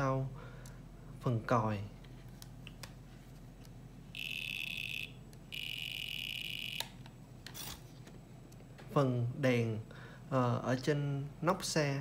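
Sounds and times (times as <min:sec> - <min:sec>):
high-pitched buzzer beeps: 0:04.1 - 0:07.0.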